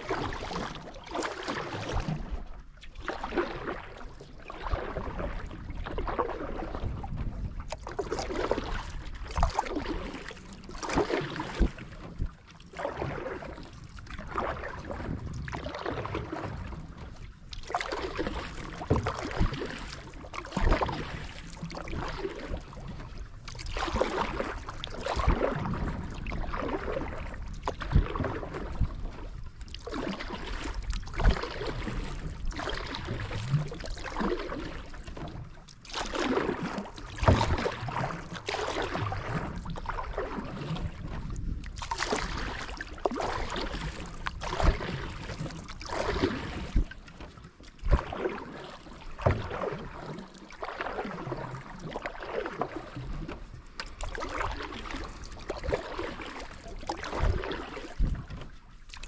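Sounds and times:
paddle splashing in water: 0:00.0 - 0:59.0.

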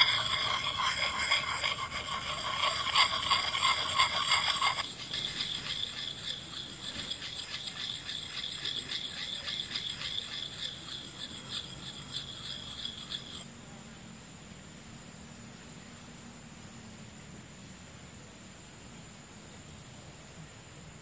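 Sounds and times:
insect high pulsing buzz: 0:00.0 - 0:21.0.

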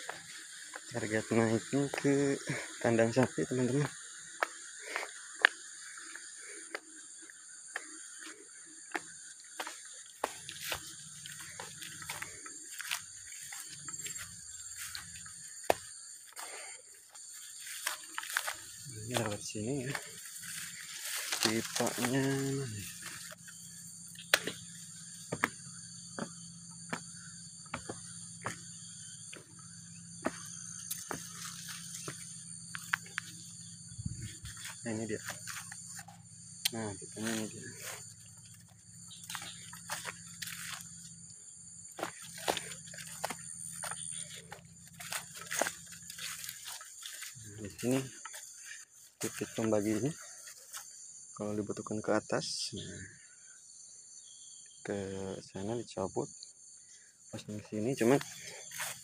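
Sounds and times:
crickets chirping: 0:00.0 - 0:59.0
insect drone: 0:00.0 - 0:59.0
footsteps through grass: 0:09.6 - 0:23.6, 0:37.0 - 0:41.0, 0:42.0 - 0:50.9, 0:58.2 - 0:59.0.

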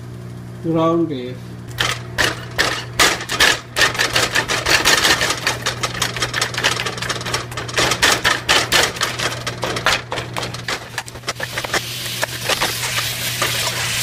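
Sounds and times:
steady low hum: 0:00.0 - 0:14.0
spatula scraping meat in pot: 0:09.7 - 0:14.0.

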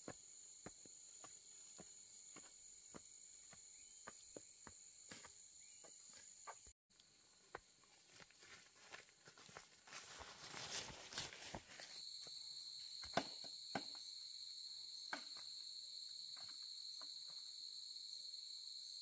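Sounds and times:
insects chorus: 0:00.0 - 0:19.0
footsteps on rocky dirt trail: 0:07.4 - 0:12.0.

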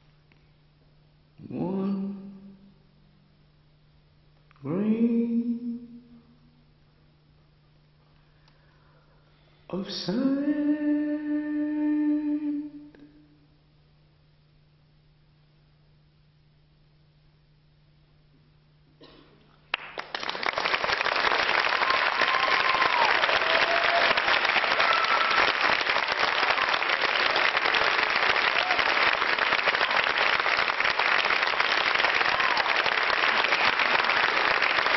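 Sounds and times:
faint low hum: 0:00.0 - 0:34.9
audience applauding: 0:19.7 - 0:34.9
crowd calls: 0:21.7 - 0:34.9.

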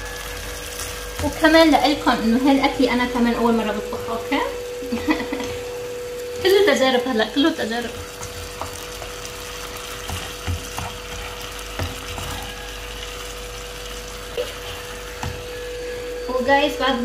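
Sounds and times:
steady hum: 0:00.0 - 0:17.0
tomatoes sizzling in a pan: 0:00.0 - 0:17.0
spatula knocking a pan: 0:10.0 - 0:12.5.

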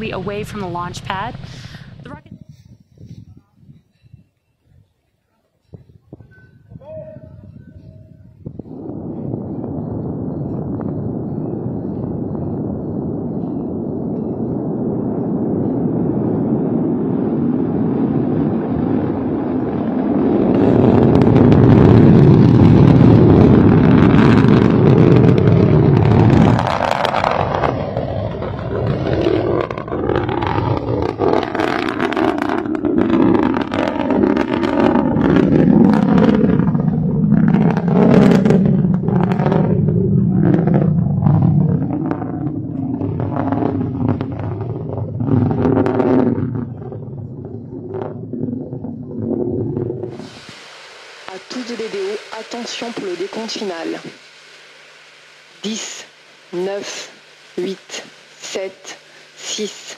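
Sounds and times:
rocket engine rumble: 0:00.0 - 0:59.9
ragged crackling: 0:20.1 - 0:50.3.

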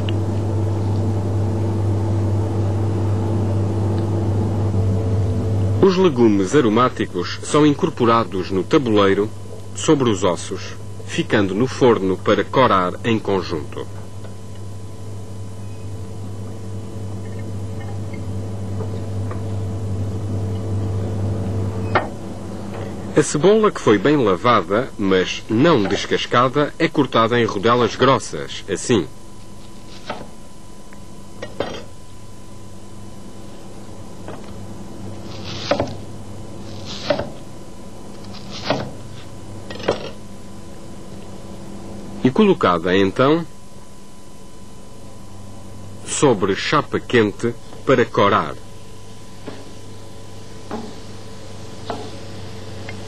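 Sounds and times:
steady low hum: 0:00.0 - 0:53.0
knife crunching through onion: 0:29.4 - 0:30.3, 0:35.2 - 0:36.0, 0:36.6 - 0:37.4, 0:38.2 - 0:39.3.

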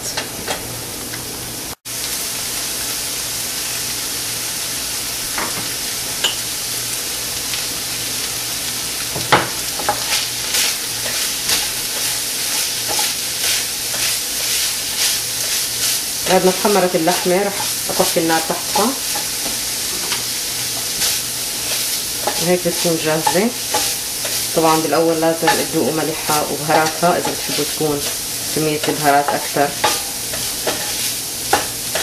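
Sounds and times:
meat sizzling in a frying pan: 0:00.1 - 0:32.0
wooden spoon scraping a pan: 0:09.8 - 0:32.0.

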